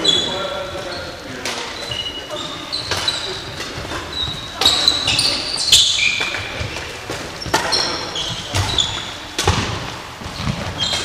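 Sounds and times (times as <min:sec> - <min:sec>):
shoes squeaking on court: 0:00.0 - 0:11.0
racket hitting shuttlecock: 0:02.8 - 0:11.0.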